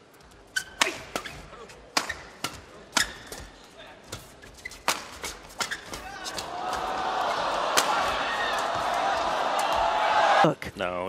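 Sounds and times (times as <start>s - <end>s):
rackets hitting shuttlecock: 0.6s - 3.5s, 4.2s - 7.0s, 7.7s - 9.8s.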